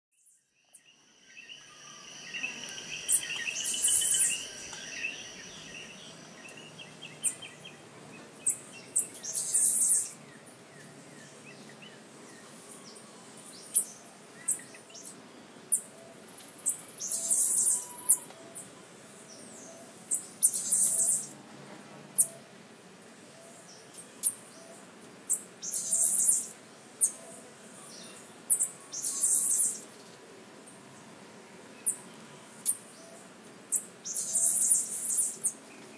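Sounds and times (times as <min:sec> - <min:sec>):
birds chirping and calling: 0:01.3 - 0:11.9, 0:16.6 - 0:18.7, 0:19.3 - 0:21.3, 0:23.4 - 0:29.9, 0:31.8 - 0:35.9
short high-pitched bird calls: 0:17.1 - 0:18.3.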